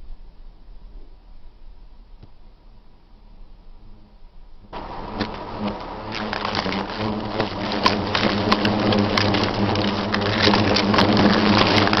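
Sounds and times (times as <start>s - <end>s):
wasps buzzing: 4.7s - 12.0s.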